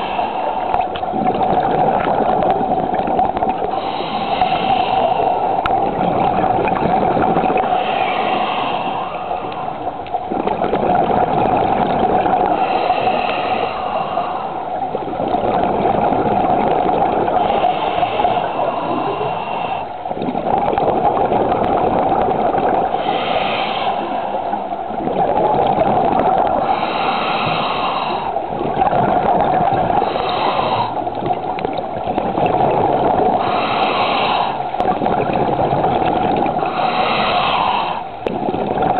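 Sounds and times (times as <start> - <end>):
underwater bubbles rushing: 0.0 - 38.9
regulator breath hiss: 3.7 - 5.6, 7.6 - 9.9, 12.5 - 14.7, 22.9 - 24.4, 26.6 - 28.4, 30.0 - 31.0, 33.4 - 34.7, 36.6 - 38.2.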